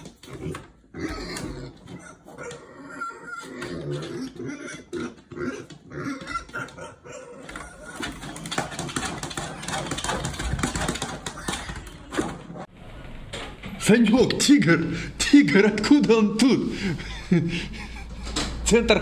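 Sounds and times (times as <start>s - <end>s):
pig grunting: 0.0s - 12.6s.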